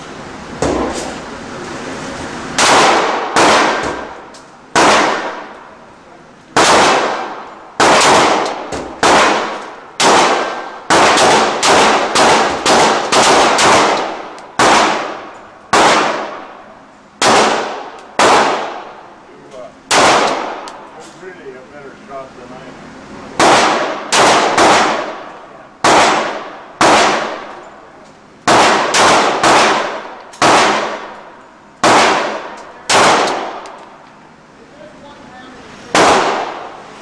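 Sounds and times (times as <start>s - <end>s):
pistol shots echoing indoors: 2.6s - 5.6s, 6.6s - 16.6s, 17.2s - 19.0s, 19.9s - 20.8s, 23.4s - 27.6s, 28.4s - 33.9s, 35.9s - 36.8s.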